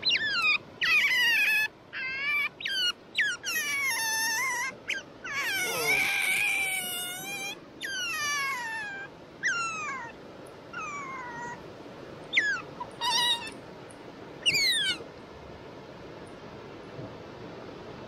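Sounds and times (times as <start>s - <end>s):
otter squeaking calls: 0.0s - 10.2s, 12.3s - 13.6s, 14.4s - 15.1s.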